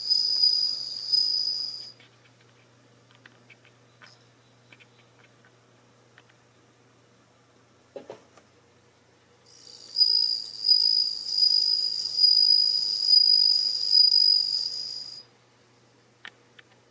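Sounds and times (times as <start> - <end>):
cricket singing high ringing song: 0.0 - 2.0, 3.7 - 7.8, 8.7 - 16.1.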